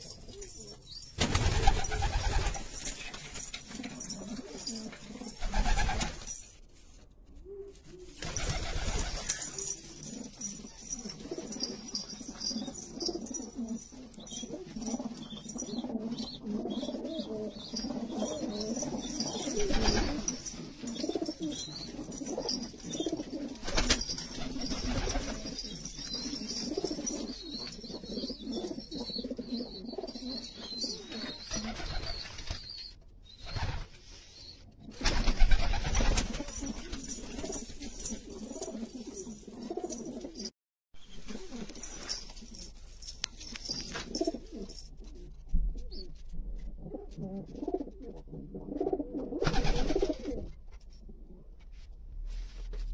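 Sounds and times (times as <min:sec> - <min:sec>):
wings flapping: 0:01.2 - 0:04.8, 0:05.4 - 0:06.4, 0:08.1 - 0:10.2, 0:19.5 - 0:20.6, 0:23.6 - 0:25.6, 0:34.9 - 0:38.6, 0:49.4 - 0:50.4
pigeons cooing: 0:07.5 - 0:32.0.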